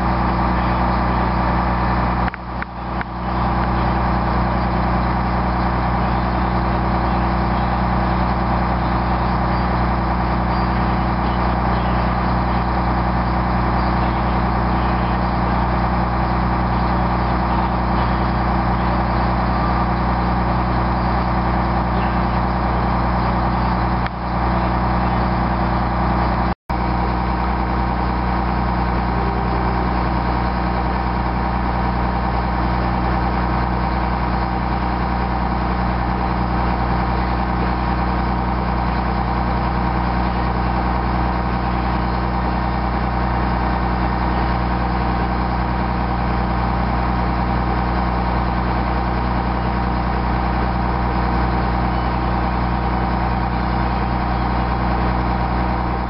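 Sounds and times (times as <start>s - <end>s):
diesel engine running: 0.0s - 56.0s.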